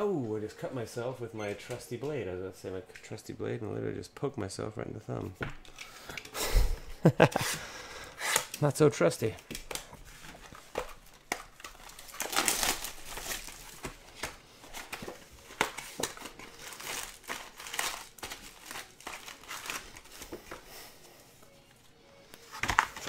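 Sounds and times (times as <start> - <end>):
plastic and foil packs crinkling: 7.0 - 21.0, 22.3 - 23.0.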